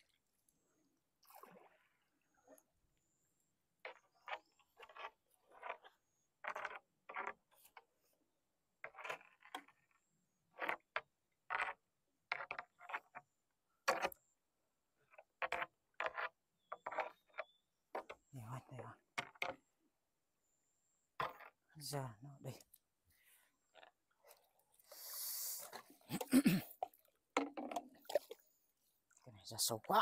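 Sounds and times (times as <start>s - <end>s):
pole splashing in water: 25.6s - 28.4s.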